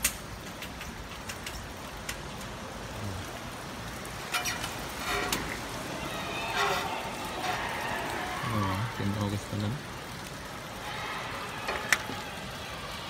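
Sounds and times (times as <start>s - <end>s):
scattered clicks: 0.0s - 2.6s
river water rushing: 1.8s - 13.0s.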